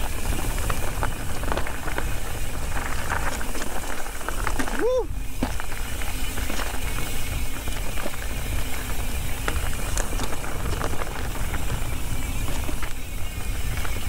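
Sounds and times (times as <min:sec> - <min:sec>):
bike clicks and rattles: 0:00.0 - 0:14.0
bike tyres crunching over rock: 0:00.0 - 0:14.0.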